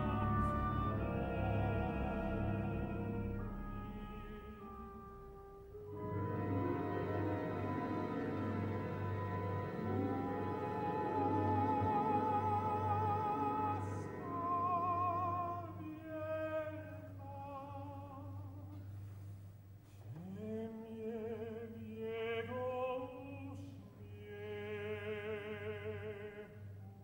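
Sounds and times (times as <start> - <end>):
man singing opera: 0.0 - 4.9, 9.8 - 18.8, 20.1 - 26.6.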